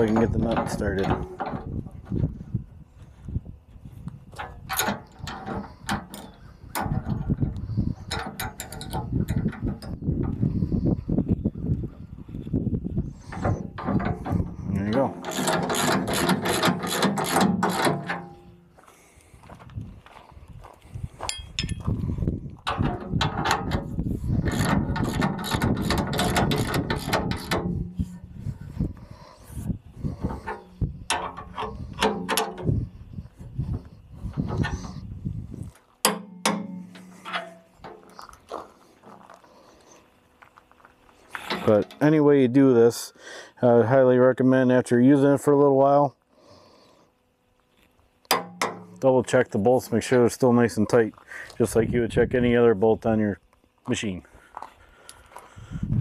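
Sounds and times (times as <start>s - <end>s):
ratcheting wrench clicking: 15.2s - 18.2s, 24.4s - 27.7s.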